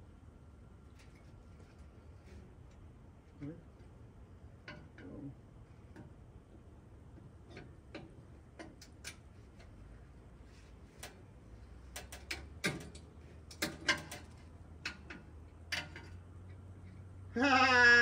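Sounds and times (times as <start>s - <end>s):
light clicks and taps of metal tools: 5.9s - 9.8s, 11.0s - 11.2s, 11.8s - 17.1s.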